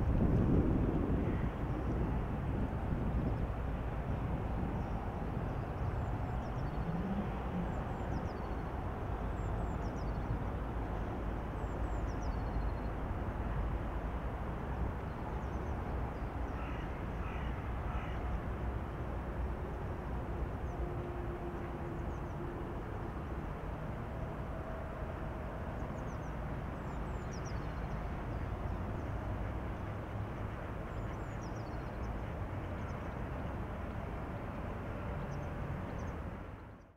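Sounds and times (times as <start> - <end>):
steady low rumble: 0.0 - 9.6.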